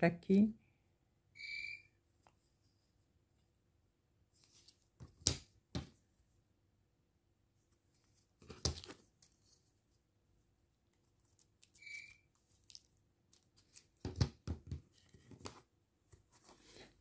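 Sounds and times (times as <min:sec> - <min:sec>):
high squeak: 0:11.8 - 0:12.2.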